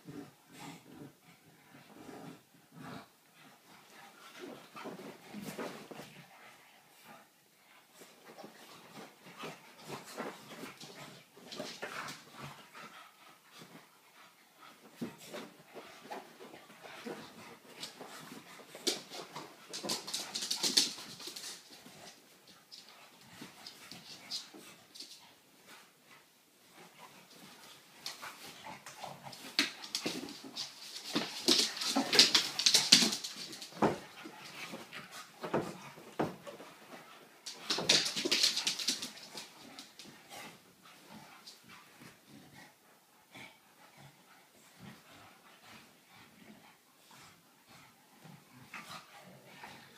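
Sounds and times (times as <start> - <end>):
rustling: 3.4 - 42.2
puppies scuffling: 3.6 - 7.1, 8.0 - 42.3.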